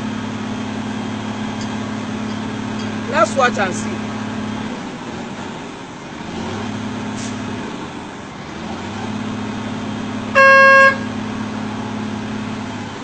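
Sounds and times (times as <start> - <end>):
vehicle engine idling: 9.4 - 13.0
short car horn blast: 10.3 - 11.1.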